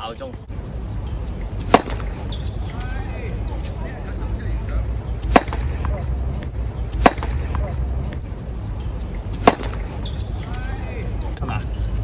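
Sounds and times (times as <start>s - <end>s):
tennis racket hitting ball: 1.6s - 2.2s, 5.2s - 6.0s, 6.9s - 7.8s, 9.3s - 10.1s.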